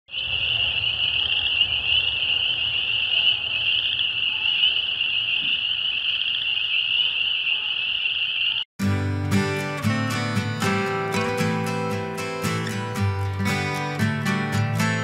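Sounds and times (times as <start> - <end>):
frogs peeping: 0.1 - 8.7.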